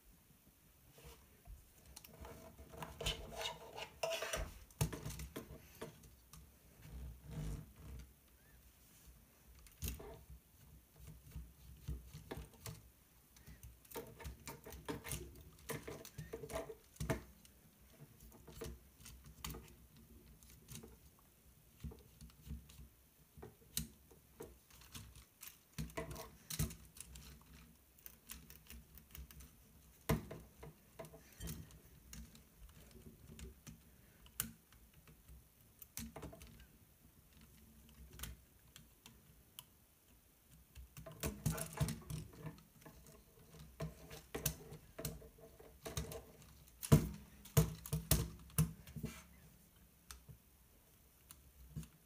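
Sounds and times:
plastic parts clicking and rattling: 0:23.4 - 0:39.3, 0:40.5 - 0:49.0.

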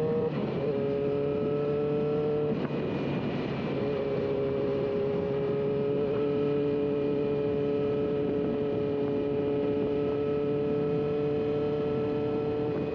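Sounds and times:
road and wind noise hiss: 0:00.0 - 0:12.9
vehicle engine running steadily: 0:00.0 - 0:12.9.

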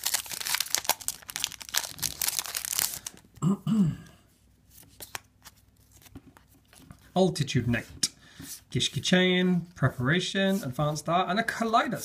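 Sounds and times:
foil wrapper crinkling: 0:00.0 - 0:03.3.

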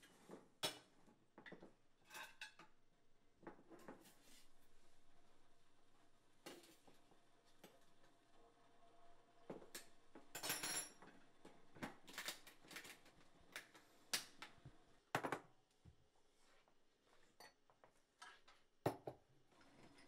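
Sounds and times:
dishes and utensils clinking: 0:02.0 - 0:02.7.

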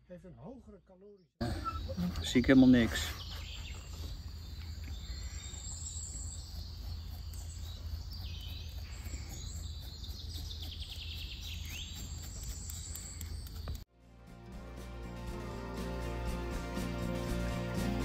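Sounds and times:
birds chirping: 0:00.4 - 0:13.8.

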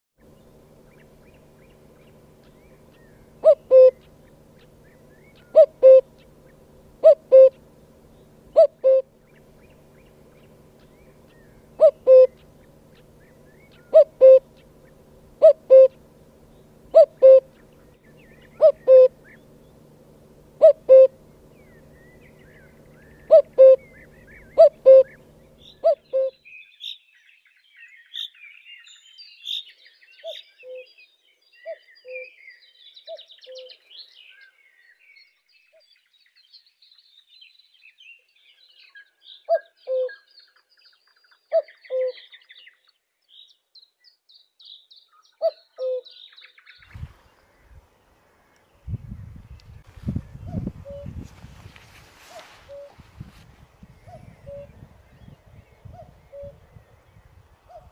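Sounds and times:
steady low hum: 0:00.2 - 0:26.4, 0:46.8 - 0:57.9
small songbirds chirping: 0:00.2 - 0:57.9
cuckoo calling: 0:00.8 - 0:26.4, 0:39.5 - 0:40.3, 0:41.5 - 0:42.3, 0:45.4 - 0:46.2, 0:50.3 - 0:57.9.

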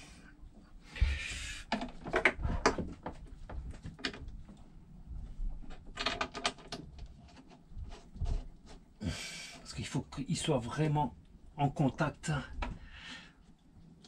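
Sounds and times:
metal clicks and knocks: 0:01.7 - 0:04.6, 0:05.6 - 0:07.6.

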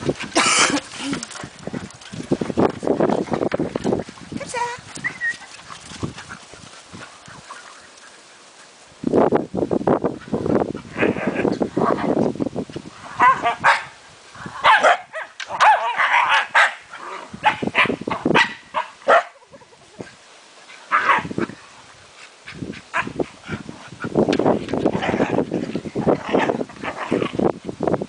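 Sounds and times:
dogs yipping and barking: 0:04.6 - 0:08.6, 0:13.2 - 0:14.0, 0:14.6 - 0:19.8.

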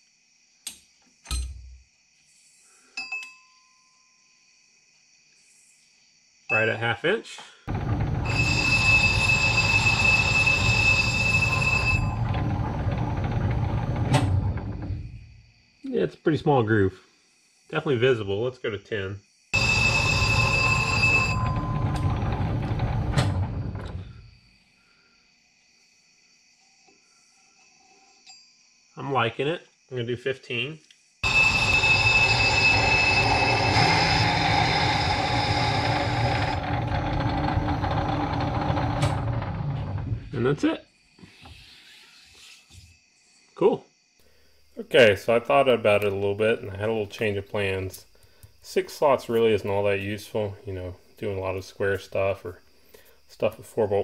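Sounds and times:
lathe running rumble: 0:07.7 - 0:15.2, 0:19.6 - 0:24.1, 0:31.2 - 0:40.3
high-pitched squeal of cutting tool: 0:07.8 - 0:12.6, 0:31.2 - 0:38.5.

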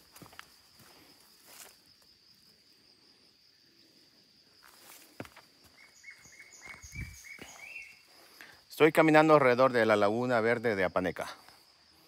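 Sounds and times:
footsteps on a dirt path: 0:00.0 - 0:02.0, 0:04.6 - 0:08.4
high insect trill: 0:00.0 - 0:12.0.

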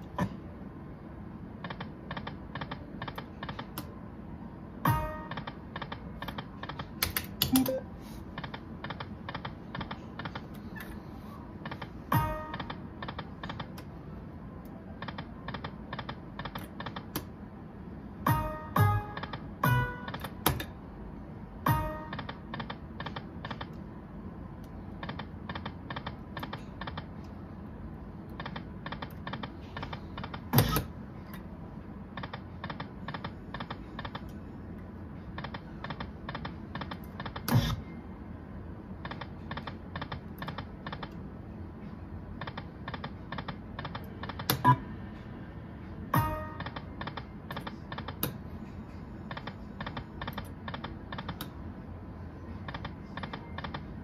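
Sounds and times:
slot machine reels clicking: 0:04.9 - 0:07.8, 0:21.7 - 0:23.8, 0:46.2 - 0:48.3.

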